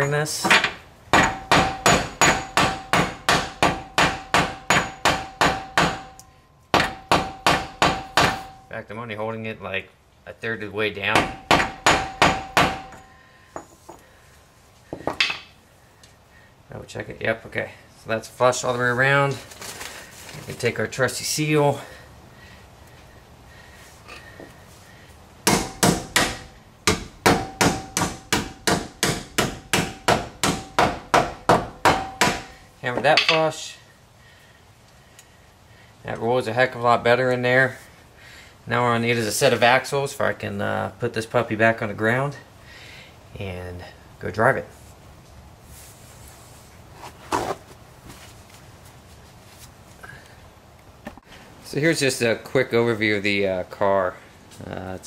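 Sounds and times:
hammer striking metal: 0.0 - 8.7, 11.2 - 13.2, 25.5 - 32.6.

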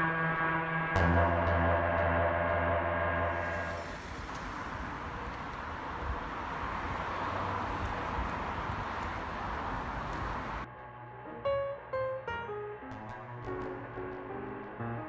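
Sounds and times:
road traffic hiss and rumble: 2.9 - 10.7.

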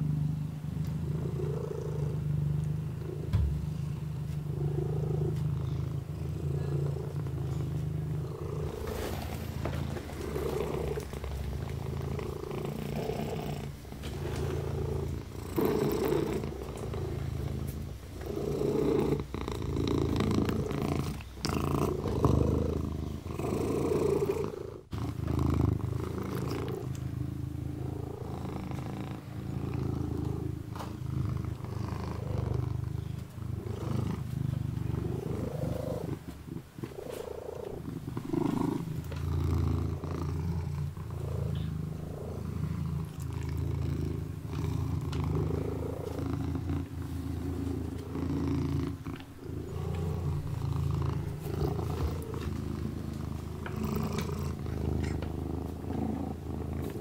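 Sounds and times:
kitten purring: 0.0 - 57.0.

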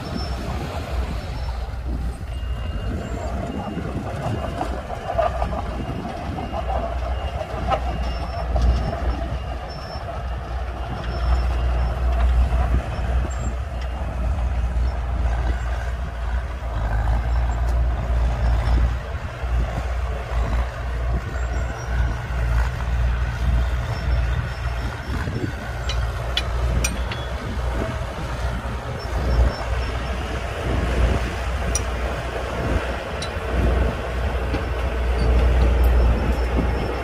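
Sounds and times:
bulldozer diesel engines rumbling: 0.0 - 37.0.

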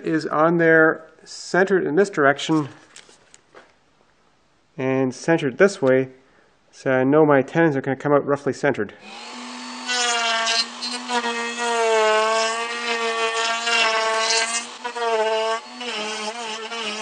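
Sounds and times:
wood router whining: 9.0 - 17.0.

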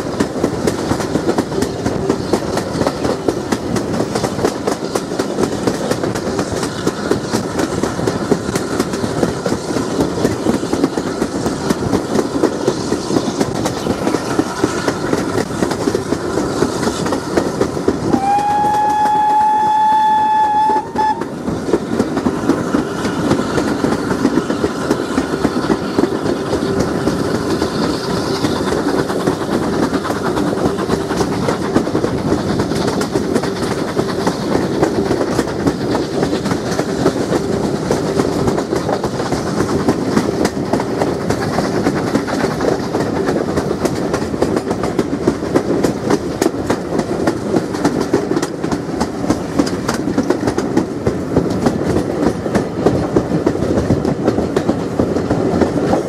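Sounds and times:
train rumble: 0.0 - 56.0
wheels clattering on track: 0.0 - 56.0
steam whistle: 18.1 - 21.4.

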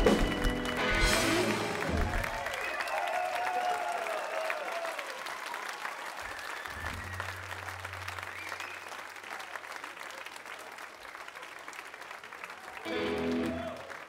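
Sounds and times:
blues-rock band playing: 0.0 - 2.4, 12.9 - 13.6
audience applauding: 0.0 - 14.0.

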